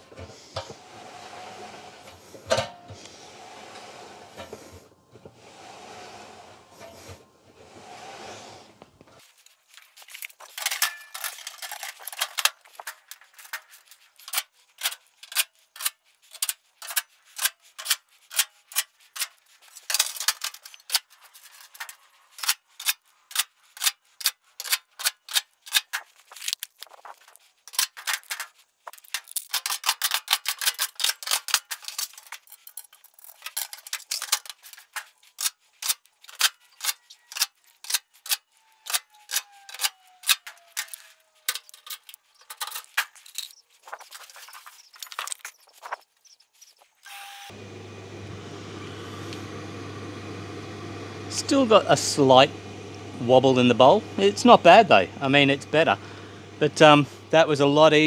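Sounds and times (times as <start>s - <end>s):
sheet metal panels clicking: 27.7s - 43.5s.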